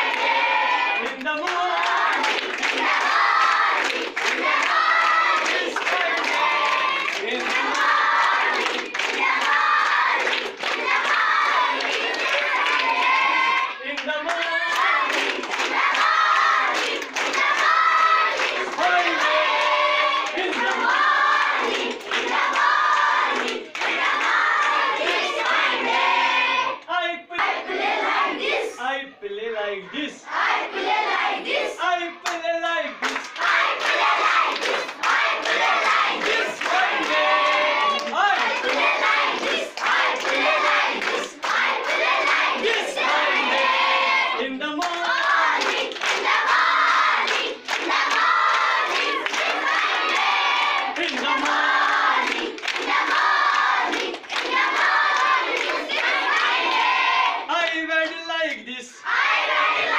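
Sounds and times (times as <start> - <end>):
girls singing in unison: 0.0 - 1.0, 2.0 - 13.8, 14.7 - 26.8, 29.9 - 31.8, 33.0 - 57.5, 59.0 - 59.9
girls chanting and shouting: 29.8 - 44.4, 52.1 - 57.5.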